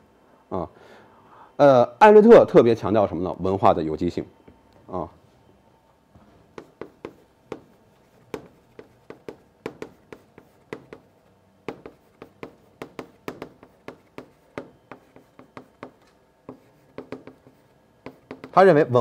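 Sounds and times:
chalk tapping and scratching: 6.6s - 18.6s.

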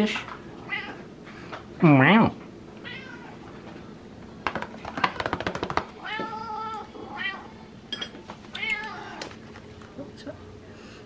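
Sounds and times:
cat meowing: 2.8s - 3.4s, 6.0s - 7.5s.

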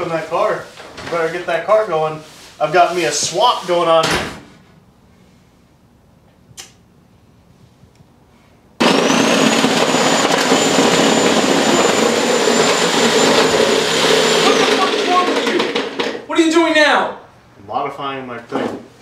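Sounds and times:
electric power saw cutting: 8.8s - 16.2s.

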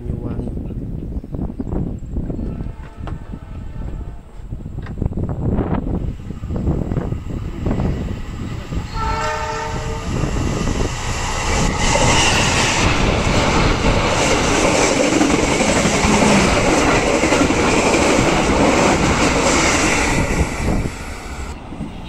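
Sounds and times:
train running on rails: 0.1s - 22.0s.

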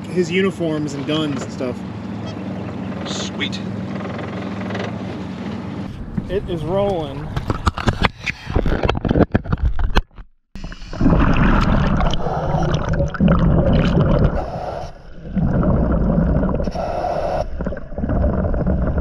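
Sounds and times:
underwater scuba breathing bubbles: 10.6s - 19.0s
water splashing: 10.6s - 19.0s.

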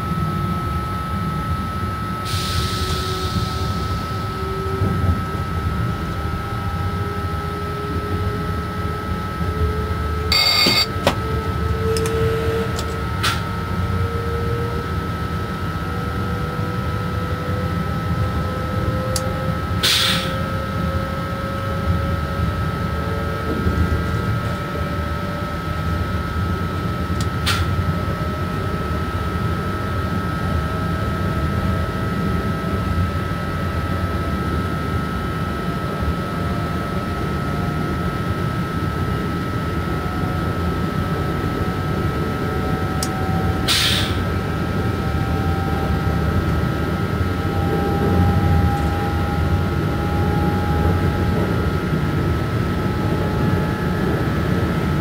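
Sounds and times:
train running gear rumble: 2.8s - 7.0s, 10.3s - 13.5s, 23.2s - 24.9s
constant high tone: 10.3s - 11.1s.

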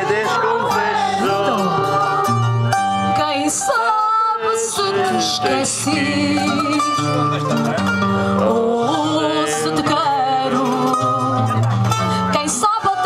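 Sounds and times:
woman singing into microphone: 0.0s - 7.0s, 8.4s - 13.0s
guitars playing: 0.0s - 13.0s.

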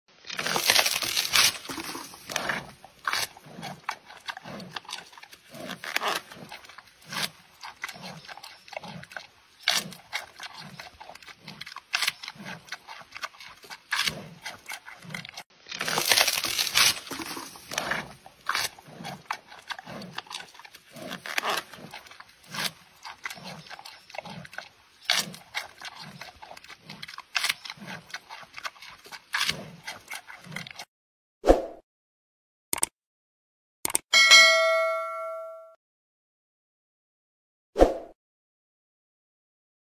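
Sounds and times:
panda crunching bamboo: 0.2s - 30.8s
steady chewing: 0.3s - 30.9s.

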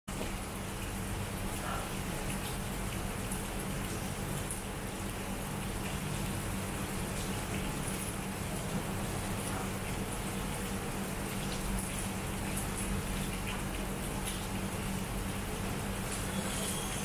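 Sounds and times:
raindrop ticks: 7.1s - 15.0s
heavy rain hissing: 15.1s - 17.0s.

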